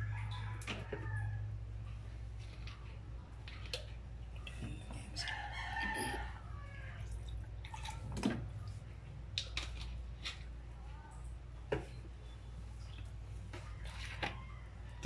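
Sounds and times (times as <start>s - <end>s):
low steady hum: 0.0s - 15.0s
water dripping: 3.4s - 9.8s.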